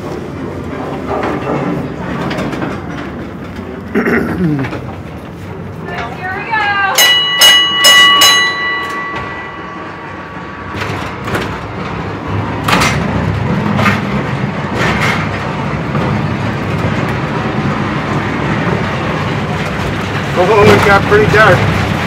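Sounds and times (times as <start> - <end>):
train car clanking: 0.0 - 22.0
train car rumbling in tunnel: 0.0 - 22.0
bell ringing: 6.7 - 10.7.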